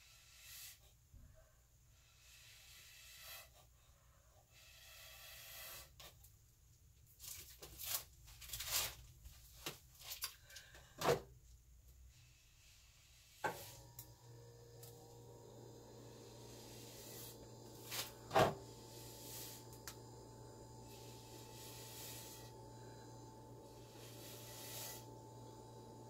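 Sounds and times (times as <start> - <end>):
breath puffs through a straw: 0.0 - 1.0, 2.0 - 6.1, 20.9 - 22.6, 23.6 - 25.2.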